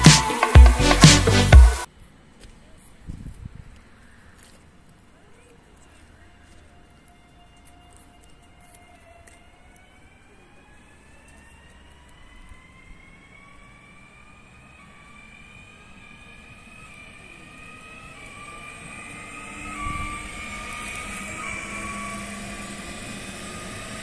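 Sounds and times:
electric train motors whining: 11.3s - 24.0s.

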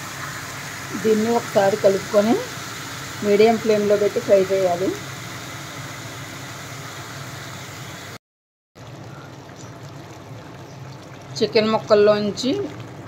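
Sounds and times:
chicken sizzling in a pan: 0.0s - 8.2s.

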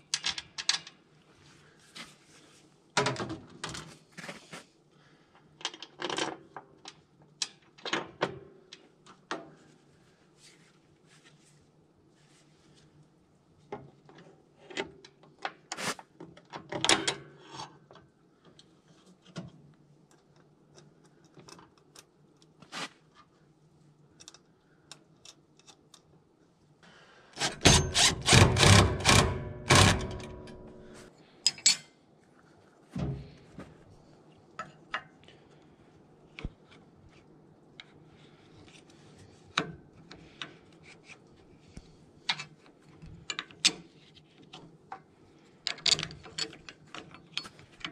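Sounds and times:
impact driver hammering bolt: 27.4s - 30.7s
metal parts clicking and knocking: 27.4s - 31.9s, 45.6s - 47.9s.

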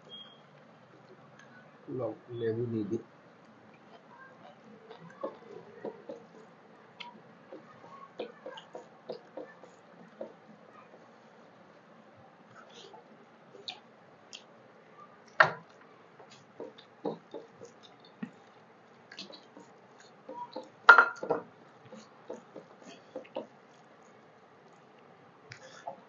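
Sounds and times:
chewing: 3.4s - 11.8s, 15.2s - 26.0s
fingers mixing rice wet squelches: 3.4s - 20.9s, 21.5s - 26.0s.

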